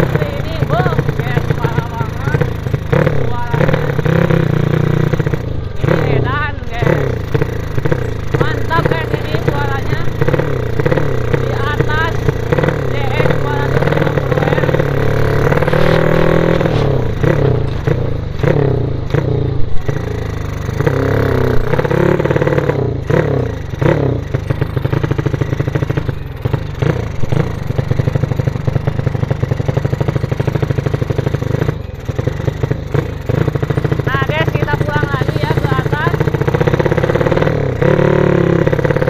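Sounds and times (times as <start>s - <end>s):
small motorcycle engine revving: 0.0s - 39.0s.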